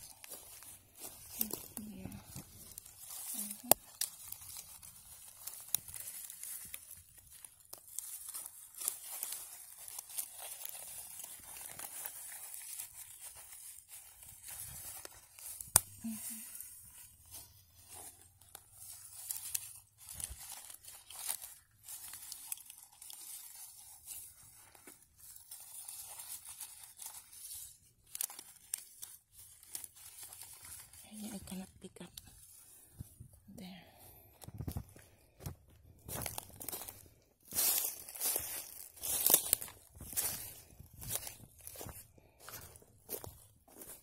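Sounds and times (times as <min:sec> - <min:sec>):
forest litter crunching: 0:00.0 - 0:44.0
twig snapping: 0:00.1 - 0:13.2, 0:14.5 - 0:16.0, 0:28.1 - 0:30.8.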